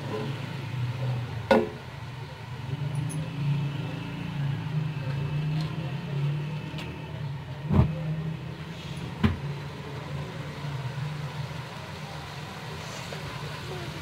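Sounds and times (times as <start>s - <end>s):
paste frying in oil: 8.3s - 14.0s.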